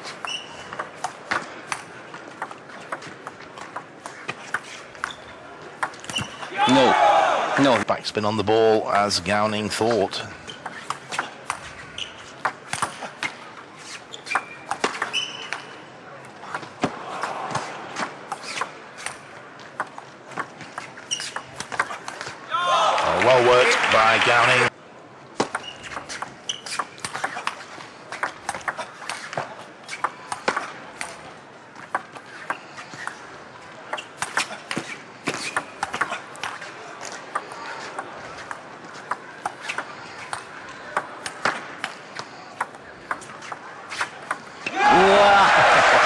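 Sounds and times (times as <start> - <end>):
shoe squeaks on floor: 0.0 - 0.8, 4.6 - 5.3, 6.1 - 6.5, 10.5 - 12.3, 13.8 - 15.8, 18.4 - 18.7, 20.9 - 21.5, 25.5 - 27.4
murmur of crowd: 0.0 - 46.0.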